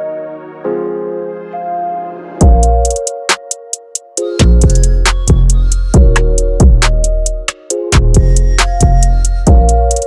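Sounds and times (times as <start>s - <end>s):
held keyboard chords: 0.0s - 10.0s
beat with deep bass: 2.4s - 10.0s
hi-hat ticks: 2.6s - 10.0s.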